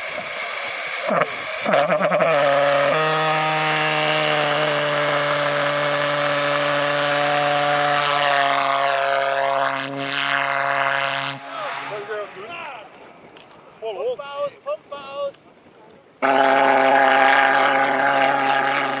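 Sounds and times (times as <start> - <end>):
pulse-jet engine buzzing drone: 0.0 - 12.0.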